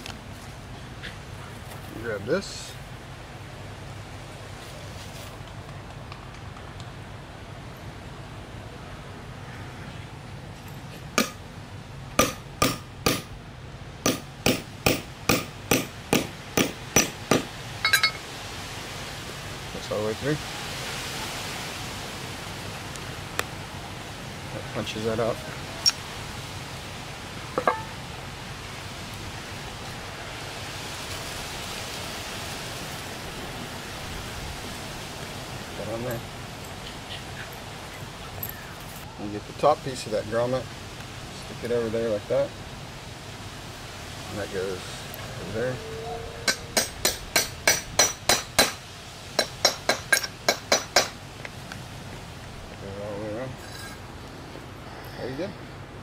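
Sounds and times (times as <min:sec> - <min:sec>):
hammer tapping metal tool: 0:14.1 - 0:18.2, 0:27.6 - 0:28.0, 0:49.4 - 0:51.2
metallic clink: 0:17.8 - 0:18.2, 0:27.6 - 0:28.0.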